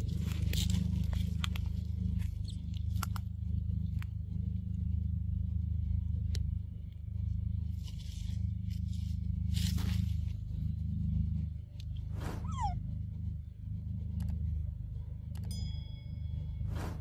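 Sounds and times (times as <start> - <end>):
rustling in dry leaves: 0.0 - 2.5, 7.7 - 10.6
steady low hum: 0.0 - 17.0.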